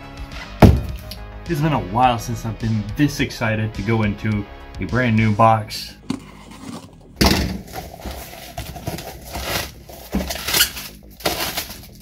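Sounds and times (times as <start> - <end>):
bubble wrap crinkling: 6.1 - 12.0
packing tape pulled off: 7.6 - 12.0.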